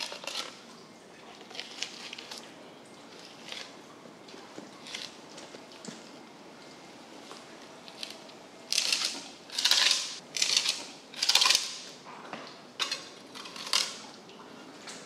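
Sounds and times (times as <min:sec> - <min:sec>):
knife scraping through fish: 0:00.0 - 0:00.6, 0:01.4 - 0:02.4, 0:07.9 - 0:11.8, 0:12.8 - 0:14.0.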